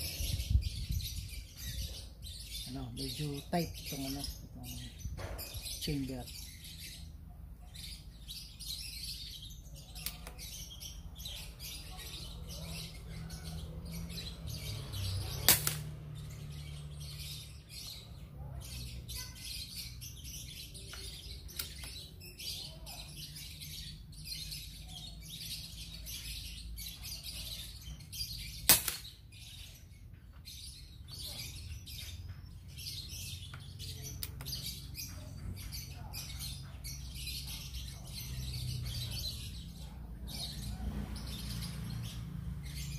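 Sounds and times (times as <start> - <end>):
birds chirping: 0.0 - 42.9
airgun shot: 15.4 - 15.9, 28.7 - 29.1.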